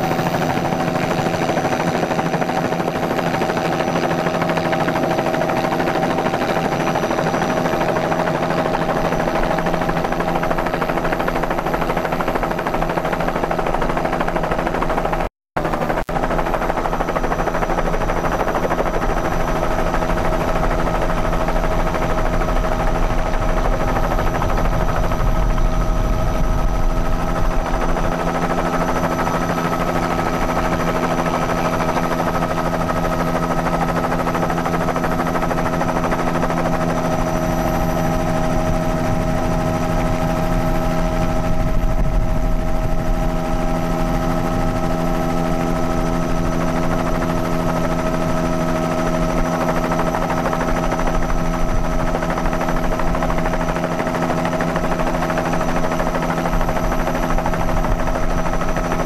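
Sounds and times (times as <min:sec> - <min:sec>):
helicopter rotor chopping: 0:00.0 - 0:59.0
turbine whine: 0:15.6 - 0:59.0.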